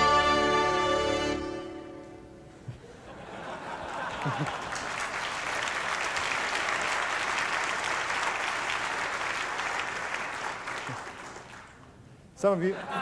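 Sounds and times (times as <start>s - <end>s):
audience applauding: 3.7s - 12.0s.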